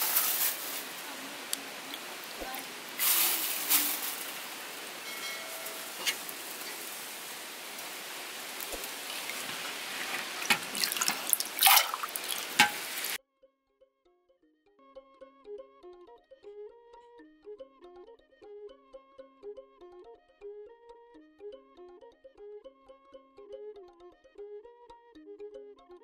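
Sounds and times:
hands swishing in water: 8.6s - 13.2s.

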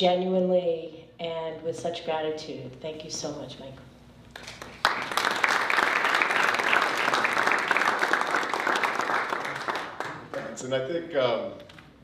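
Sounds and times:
audience applauding: 4.4s - 10.7s.

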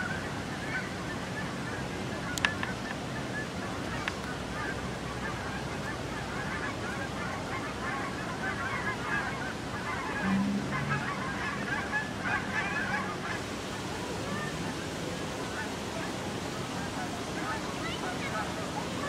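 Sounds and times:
waterfowl honking: 0.0s - 19.0s
low two-note sound: 10.2s - 11.3s.

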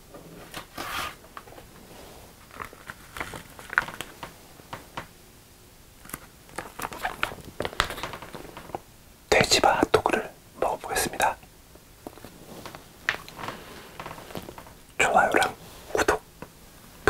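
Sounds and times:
plastic packaging crinkling: 2.4s - 4.3s, 6.0s - 8.8s, 12.0s - 14.8s.

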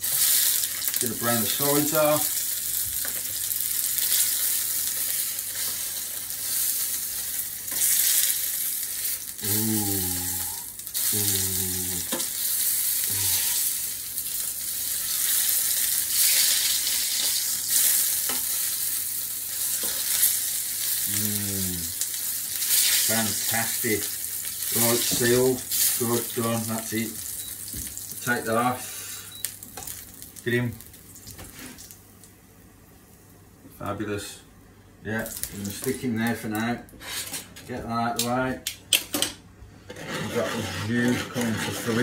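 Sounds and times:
meat sizzling in a frying pan: 0.0s - 32.2s, 35.2s - 36.0s.

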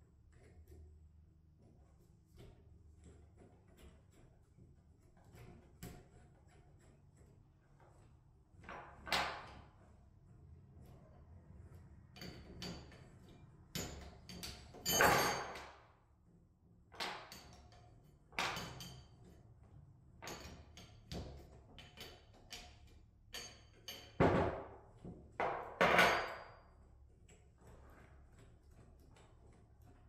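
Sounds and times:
metal tools clinking on tabletop: 12.1s - 15.8s, 17.0s - 19.4s, 20.2s - 24.5s, 25.7s - 26.8s.

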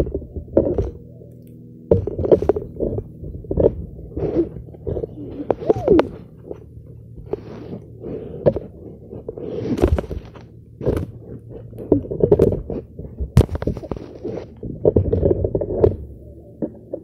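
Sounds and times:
fabric rubbing on microphone: 2.8s - 6.3s, 7.2s - 15.8s.

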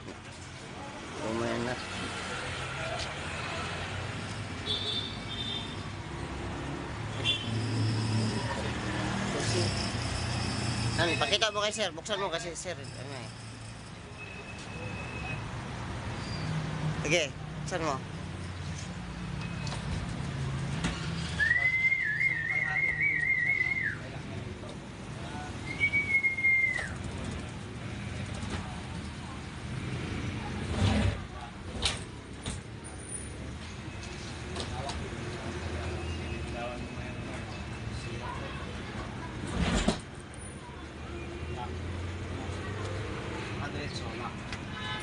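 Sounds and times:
person whistling: 21.4s - 24.0s, 25.7s - 27.0s.

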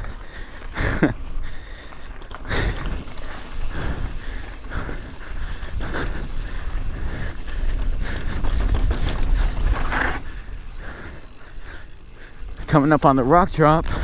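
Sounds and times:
rider breathing hard: 0.0s - 14.0s
tyres running over dirt: 0.0s - 14.0s
wind rumbling on microphone: 2.5s - 12.7s.

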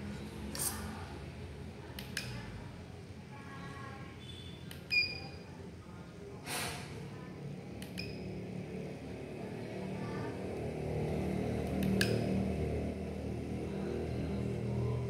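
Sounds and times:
sharp clicks: 11.7s - 12.2s.

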